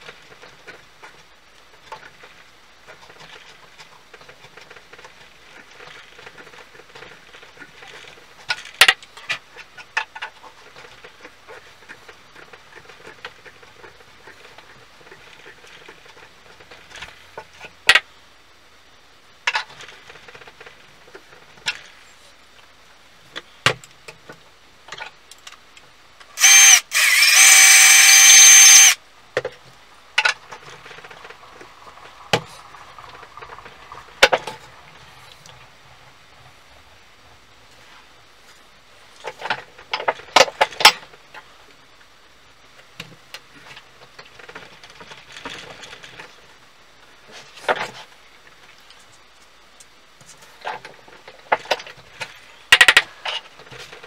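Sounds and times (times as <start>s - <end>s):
loud harsh whining noise: 26.4s - 29.0s
wood scraping and rubbing: 26.4s - 29.0s.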